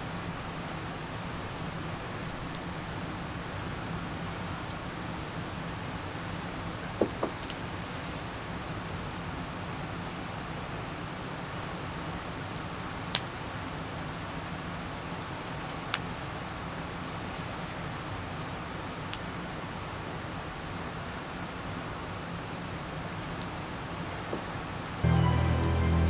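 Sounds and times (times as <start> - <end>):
steady hiss: 0.0 - 26.0.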